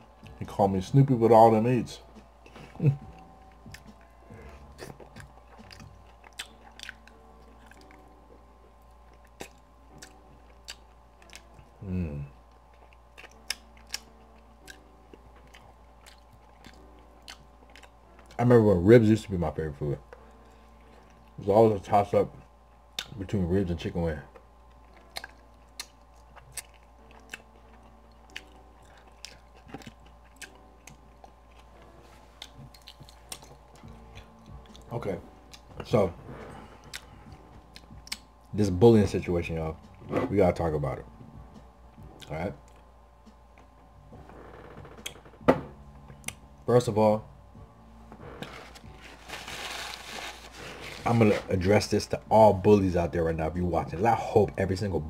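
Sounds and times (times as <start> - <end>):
chewing and biting: 2.4 - 8.1, 8.8 - 11.8, 12.5 - 18.4, 24.3 - 38.4
mouth clicks and smacks: 37.7 - 38.3.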